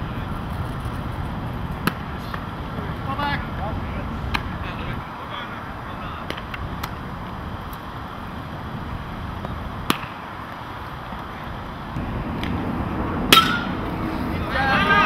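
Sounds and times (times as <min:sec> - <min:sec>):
low outdoor rumble: 0:00.0 - 0:15.0
baseball hitting glove pop: 0:13.3 - 0:13.7.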